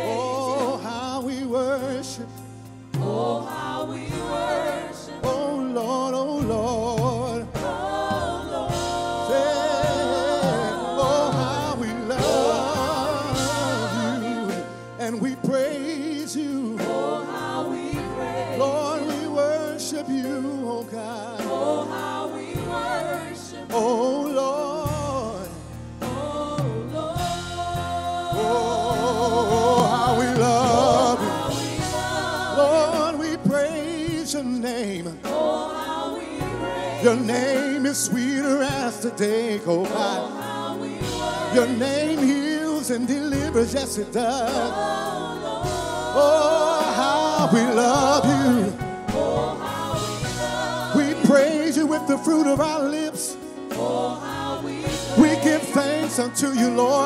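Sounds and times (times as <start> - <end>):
instrumental accompaniment: 0.0 - 57.0
backing singers: 2.9 - 57.0
man singing lead: 9.3 - 16.9, 28.4 - 31.5, 32.5 - 35.2, 41.5 - 44.7, 46.1 - 49.5, 50.9 - 53.4, 55.1 - 57.0.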